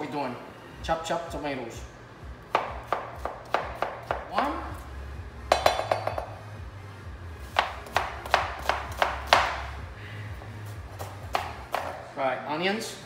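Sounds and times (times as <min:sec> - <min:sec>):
knife chopping on cutting board: 0:02.5 - 0:04.5, 0:07.5 - 0:09.7, 0:10.9 - 0:12.0.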